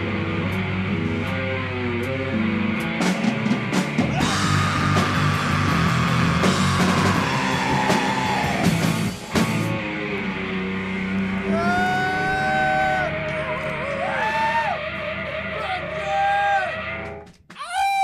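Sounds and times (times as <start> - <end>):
punk rock band playing loud: 0.0 - 11.6.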